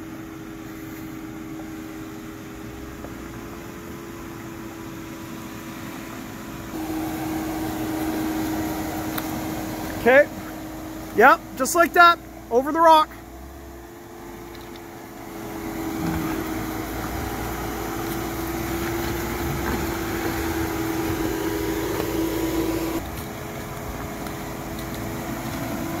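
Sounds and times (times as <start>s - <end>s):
vehicle engine humming: 0.0s - 26.0s
tyres crawling over rocks: 14.4s - 26.0s.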